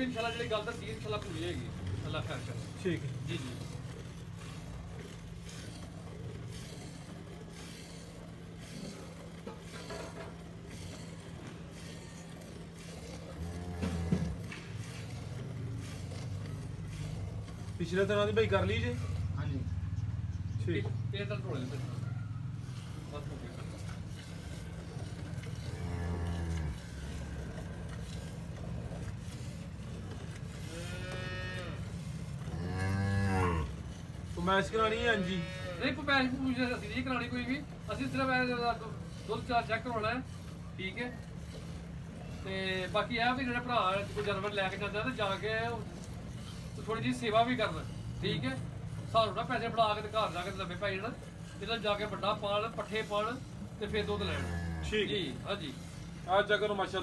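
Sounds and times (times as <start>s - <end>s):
cow mooing: 10.7s - 17.7s, 23.6s - 34.1s, 34.8s - 36.1s, 53.9s - 55.9s.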